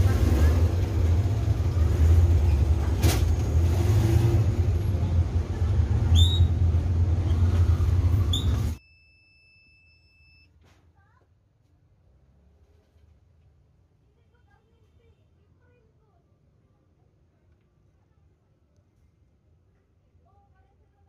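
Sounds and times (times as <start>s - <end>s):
short rising squeaks: 6.1s - 10.1s.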